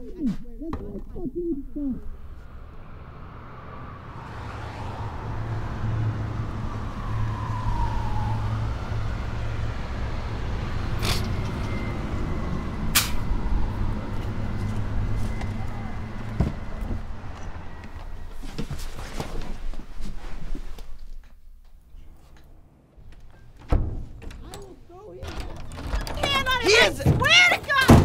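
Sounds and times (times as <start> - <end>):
heavy vehicle engine rumbling: 0.9 - 18.6, 21.8 - 28.0
falling squeal: 10.7 - 18.5.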